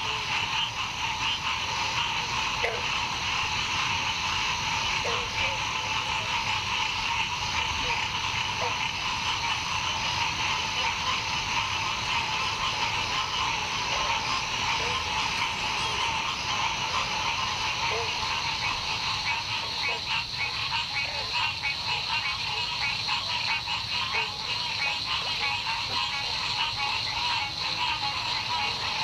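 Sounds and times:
frogs chorus calling: 0.0s - 29.0s
low single frog notes: 0.0s - 29.0s.

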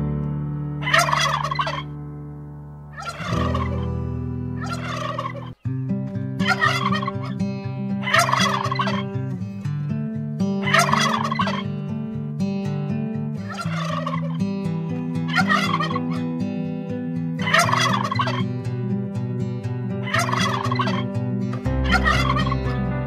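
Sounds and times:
turkeys gobbling: 0.8s - 1.9s, 3.0s - 3.9s, 4.6s - 5.6s, 6.4s - 7.4s, 8.0s - 9.1s, 10.7s - 11.7s, 13.4s - 14.4s, 15.3s - 16.2s, 17.4s - 18.5s, 20.0s - 21.1s, 21.8s - 22.7s.

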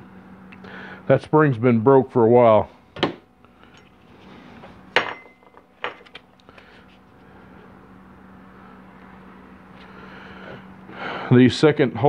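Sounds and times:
steady low hum: 0.0s - 12.0s
metal parts clanking on workbench: 5.0s - 6.2s.

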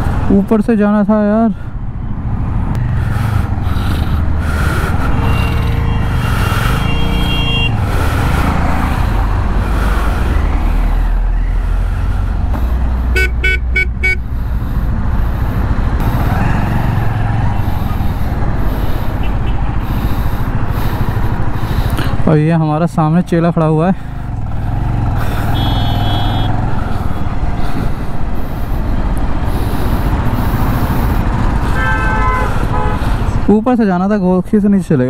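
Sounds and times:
motorcycle engine and road rumble: 0.0s - 35.0s
quick horn beeps: 13.1s - 14.2s, 25.5s - 26.6s
vehicle horn held: 13.1s - 14.2s.

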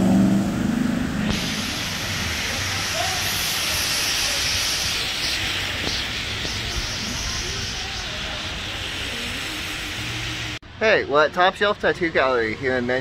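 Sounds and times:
rain on wet pavement: 1.3s - 10.6s.

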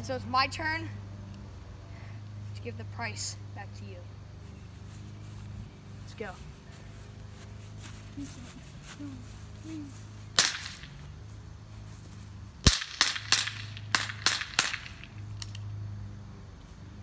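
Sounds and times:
pistol shots: 10.4s - 10.9s, 12.6s - 15.5s.

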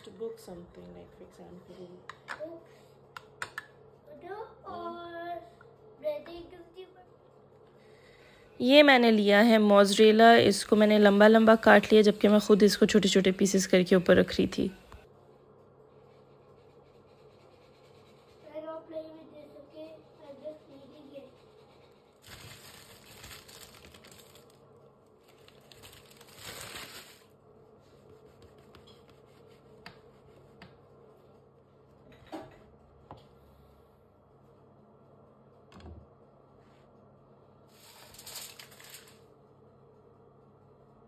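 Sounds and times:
paper bag rustling: 22.2s - 24.6s, 25.2s - 27.3s, 37.8s - 39.2s
aluminium foil crinkling: 22.2s - 27.3s, 37.8s - 39.2s.

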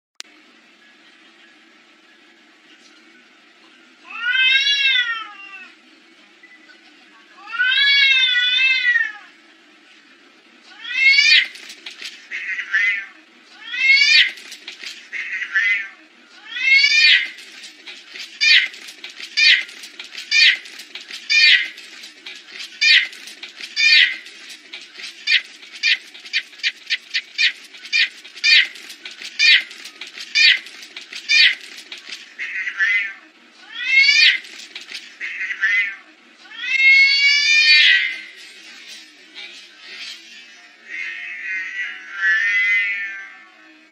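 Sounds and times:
cats yowling: 4.1s - 5.8s, 7.4s - 9.3s, 10.7s - 11.5s, 12.3s - 14.4s, 15.1s - 17.4s, 35.2s - 38.1s, 40.8s - 43.7s
sharp scratchy clicks: 11.2s - 12.3s, 14.0s - 15.1s, 17.0s - 32.3s, 34.2s - 35.2s.

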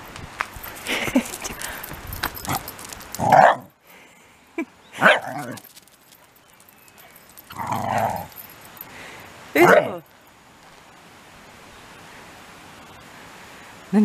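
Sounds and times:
dog barking: 3.3s - 3.7s, 5.0s - 5.5s
dog yelping: 5.0s - 5.6s.

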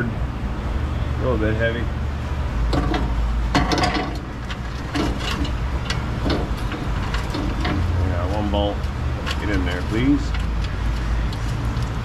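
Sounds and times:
metal guard clanking against frame: 2.7s - 8.5s.

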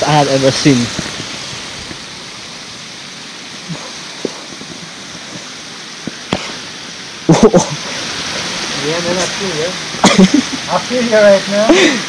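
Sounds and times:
steady rushing hiss: 0.0s - 12.0s
footsteps on rock: 4.1s - 6.6s.

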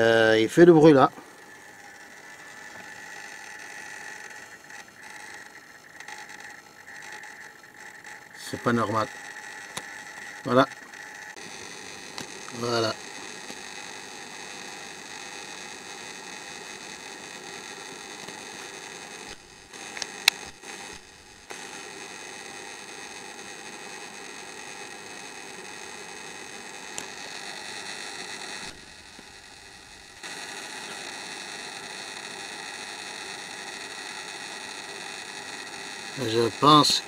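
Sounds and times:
electrical buzz and whine: 0.0s - 37.0s
inverter cooling fans: 0.0s - 37.0s
sharp clicks: 9.0s - 11.4s, 19.2s - 21.6s.

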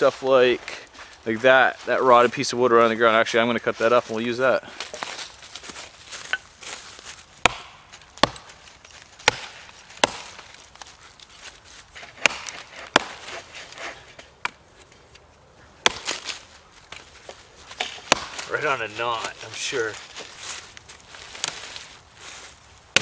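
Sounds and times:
axe chopping log: 7.4s - 8.6s, 9.2s - 10.6s, 12.0s - 14.6s, 15.8s - 17.0s, 17.7s - 18.7s.

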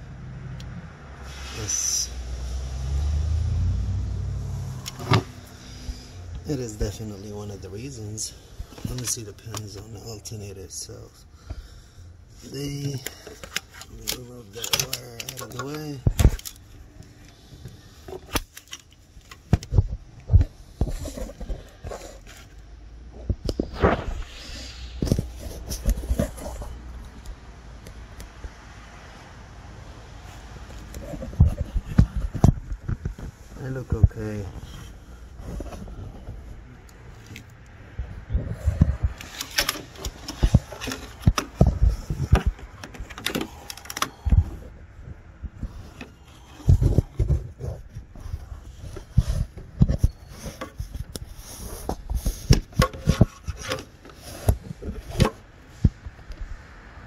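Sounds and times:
wiring harness clicks and knocks: 8.7s - 10.1s, 12.8s - 22.4s, 38.7s - 44.7s
phone handling noise: 38.8s - 44.6s.

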